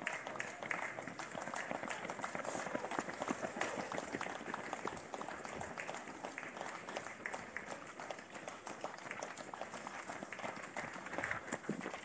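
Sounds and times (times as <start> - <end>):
spectators clapping: 0.0 - 12.0.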